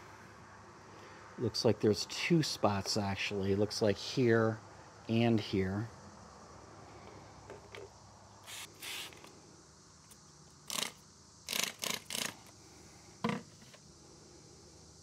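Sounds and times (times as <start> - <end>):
spray bottle hissing squirts: 8.5 - 9.2.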